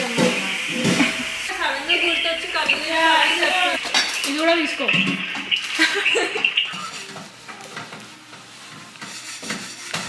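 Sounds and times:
peppers sizzling in oil: 0.0 - 10.0.

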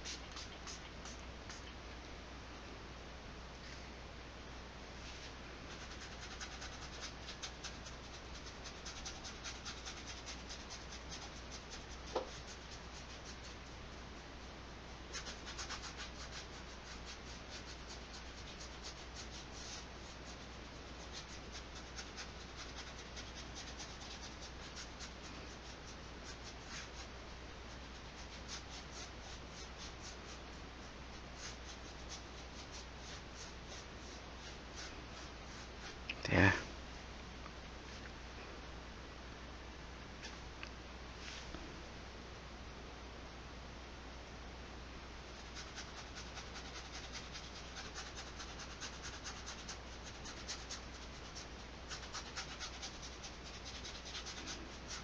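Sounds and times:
paintbrush scratching on canvas: 0.0 - 1.8, 5.0 - 13.7, 15.1 - 36.1, 45.4 - 55.0.

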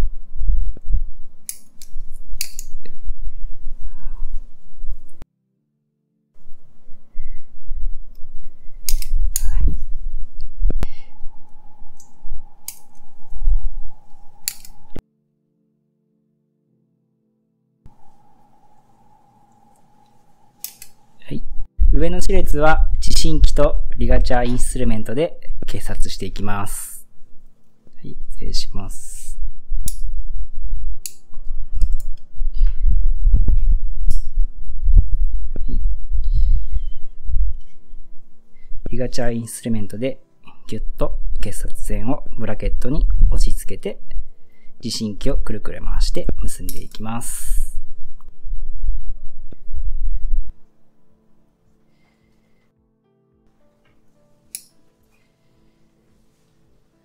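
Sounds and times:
sharp metallic instrument clicks: 1.5 - 2.8, 8.9 - 9.6, 14.4 - 14.8, 20.6 - 21.0, 54.5 - 54.8
faint steady whine: 6.4 - 15.0, 17.9 - 52.7
low handling rumble: 6.4 - 15.0, 28.1 - 39.3, 45.2 - 50.5.

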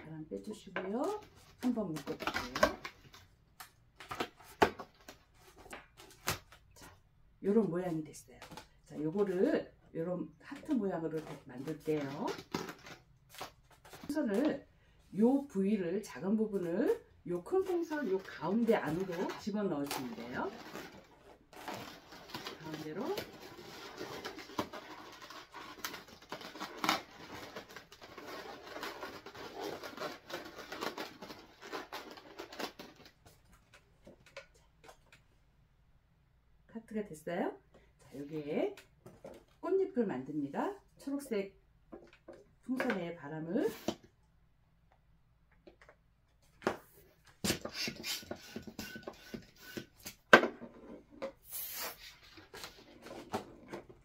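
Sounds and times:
balloons squeaking and rubbing: 47.6 - 50.0, 51.4 - 52.2.

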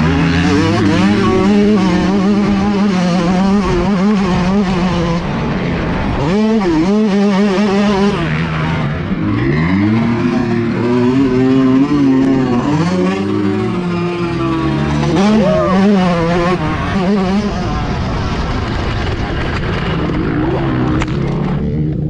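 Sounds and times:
dirt bike engine revving: 0.0 - 22.0.

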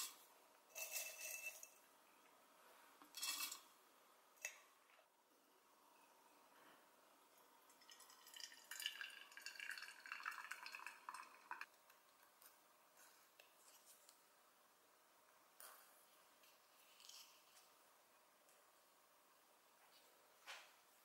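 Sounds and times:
water trickling into teapot: 7.3 - 12.4.

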